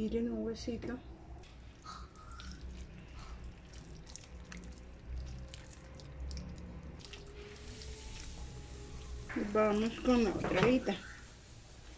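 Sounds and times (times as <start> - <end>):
low steady hum: 0.0 - 11.9
wet clicks and squelches of meat: 1.4 - 7.3.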